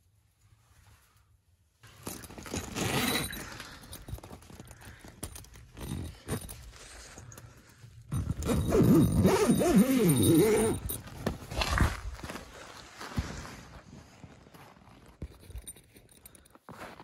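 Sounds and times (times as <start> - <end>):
fabric rustling and scuffing: 10.8 - 15.2.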